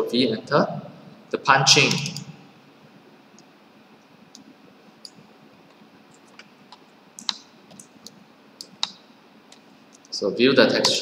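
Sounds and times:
computer mouse clicking: 4.3s - 10.1s.

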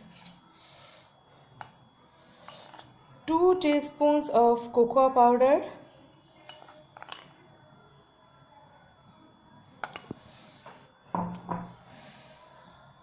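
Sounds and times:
metal spoon clinking on ceramic: 6.4s - 7.3s.

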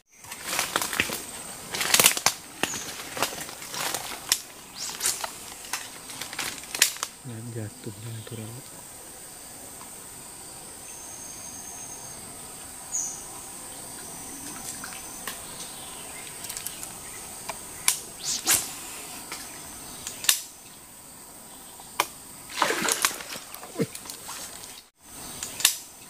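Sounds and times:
insects droning: 0.0s - 26.0s.

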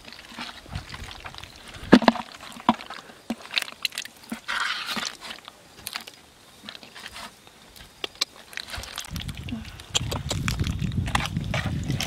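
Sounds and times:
fish clicking in plastic bucket: 0.0s - 6.9s, 8.0s - 12.0s
wet rustle: 0.0s - 12.0s
wet squelching of fish: 0.3s - 6.1s.

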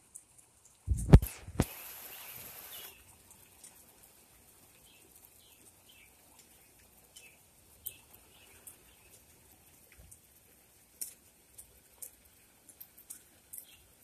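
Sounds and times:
faint bird chirps: 2.0s - 3.1s.

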